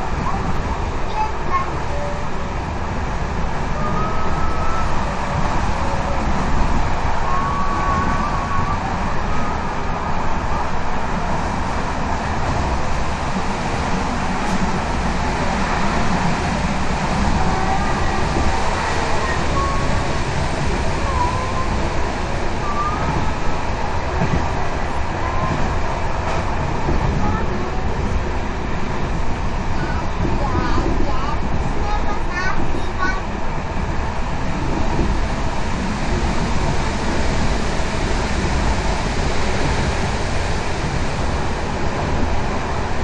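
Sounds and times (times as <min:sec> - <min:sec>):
train wheels rumbling on track: 0:00.0 - 0:43.0.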